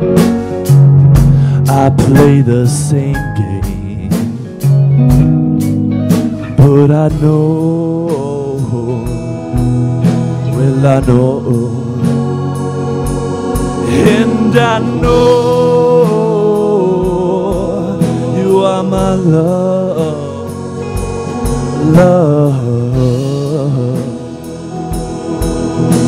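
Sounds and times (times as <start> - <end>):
electric guitar: 0.0 - 26.0
steady drum beat: 0.0 - 26.0
man singing lead: 1.4 - 4.8, 6.4 - 25.3.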